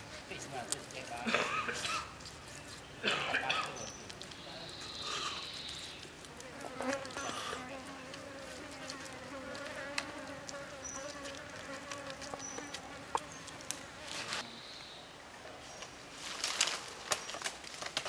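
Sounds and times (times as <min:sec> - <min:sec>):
insect buzzing: 0:04.8 - 0:14.4.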